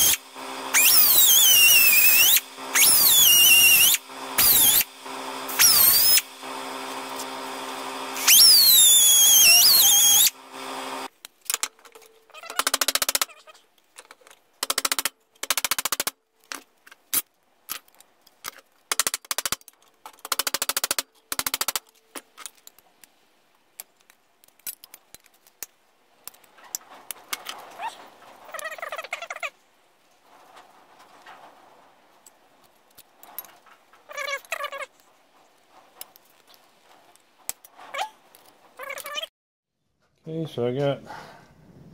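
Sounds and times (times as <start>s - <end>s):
die grinder cutting metal: 0.0s - 11.2s
rapid clicking bursts: 14.6s - 16.2s.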